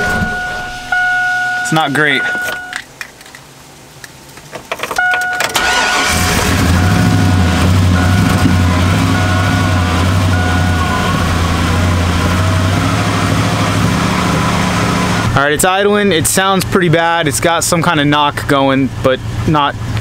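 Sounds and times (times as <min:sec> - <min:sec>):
car engine cranking and starting: 0:00.0 - 0:03.4, 0:04.4 - 0:15.4
engine idling rough with knock: 0:07.0 - 0:14.5.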